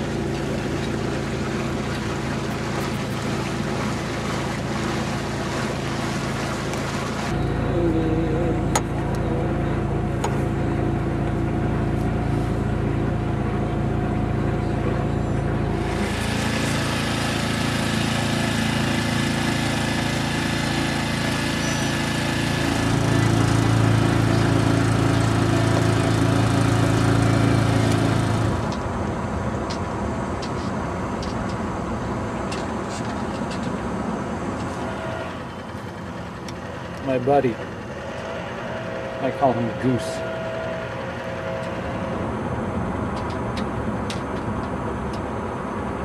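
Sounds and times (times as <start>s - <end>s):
outboard motor running: 0.0s - 30.6s, 31.5s - 46.0s.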